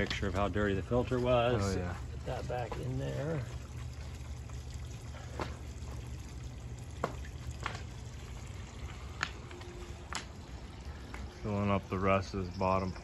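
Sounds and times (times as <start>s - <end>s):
low steady rumble: 0.0s - 13.0s
sharp water drips: 0.0s - 13.0s
water pouring and trickling: 0.0s - 13.0s.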